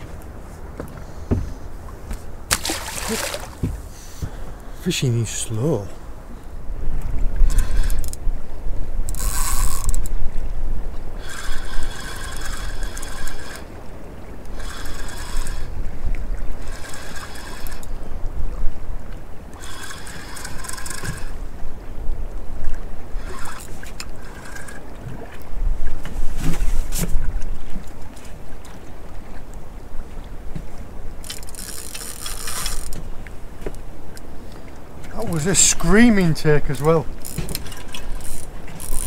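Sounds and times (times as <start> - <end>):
wind rumbling on microphone: 5.9 - 39.0
spinning reel buzzing: 7.5 - 8.2, 9.1 - 10.1, 11.2 - 13.7, 14.6 - 15.7, 16.6 - 17.9, 19.6 - 21.4, 23.2 - 24.8, 31.2 - 33.0, 37.2 - 39.0.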